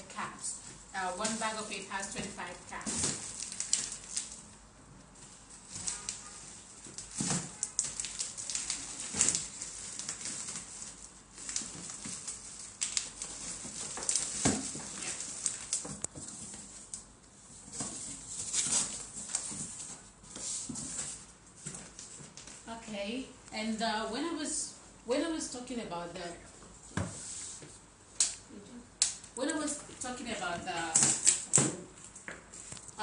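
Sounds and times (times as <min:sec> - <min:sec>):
plastic bags rustling and crinkling: 0:00.1 - 0:22.9, 0:29.6 - 0:33.0
cardboard flaps folding: 0:05.7 - 0:16.9.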